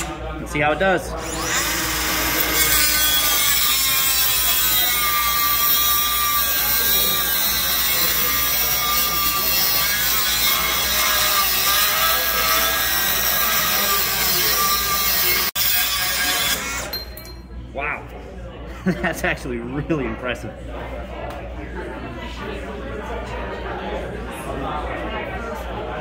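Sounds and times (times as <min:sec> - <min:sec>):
cutoff wheel grinding steel: 0:01.2 - 0:17.0.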